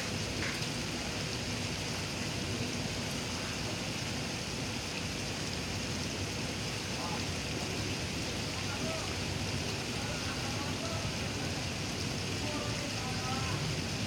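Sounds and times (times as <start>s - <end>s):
pond aerators churning water: 0.0s - 14.0s.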